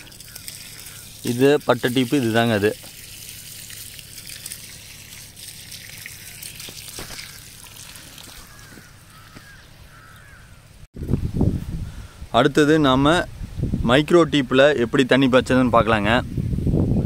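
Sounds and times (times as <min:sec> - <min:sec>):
water trickling from hose: 0:00.0 - 0:10.4.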